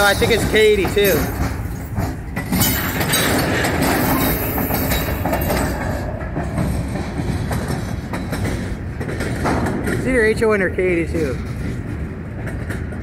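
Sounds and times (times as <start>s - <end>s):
diesel locomotive passing: 0.0s - 13.0s
train wheels clacking on rail joints: 0.0s - 13.0s.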